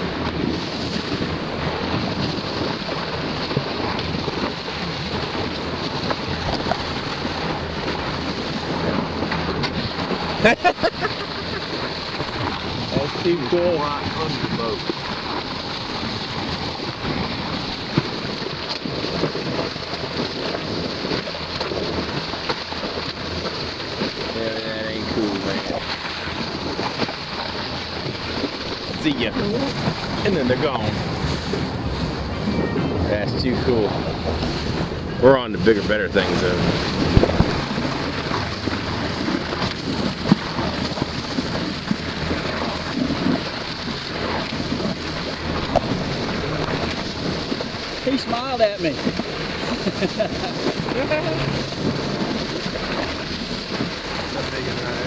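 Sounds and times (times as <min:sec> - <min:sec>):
water rushing underwater: 0:00.0 - 0:55.0.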